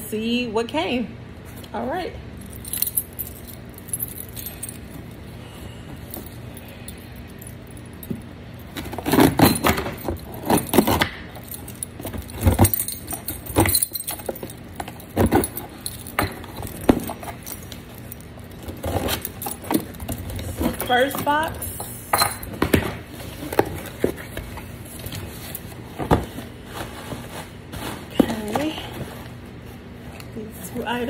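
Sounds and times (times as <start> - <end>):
keys jangling: 2.4 - 5.3, 6.0 - 22.3
key scraping and tearing tape: 8.7 - 13.6.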